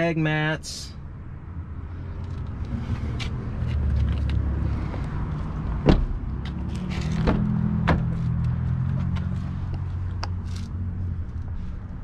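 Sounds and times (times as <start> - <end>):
car door thump: 5.8 - 6.2, 7.2 - 8.2.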